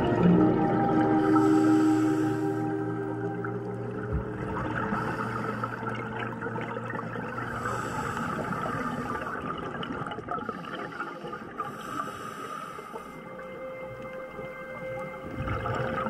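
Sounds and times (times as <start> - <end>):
underwater bubbling and crackling: 0.0 - 16.0.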